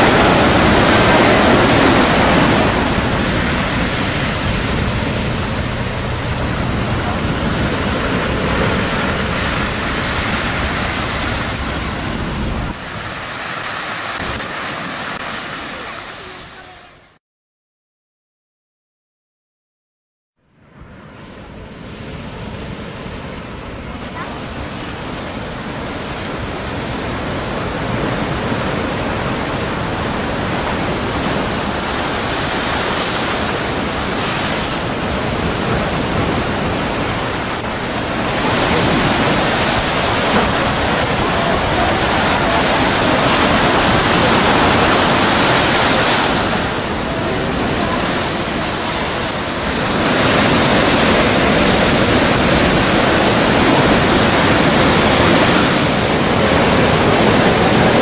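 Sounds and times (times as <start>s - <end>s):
strong wind: 0.0s - 17.2s, 20.5s - 58.0s
surf on rough sea: 0.0s - 17.2s, 20.4s - 58.0s.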